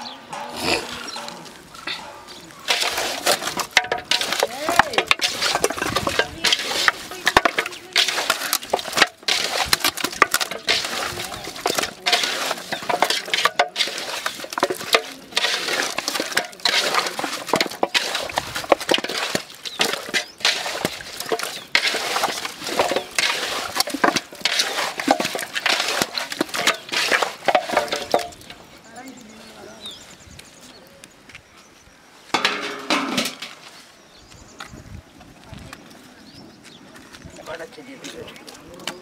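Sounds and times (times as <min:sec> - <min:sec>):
hands squelching raw chicken: 0:02.4 - 0:28.1.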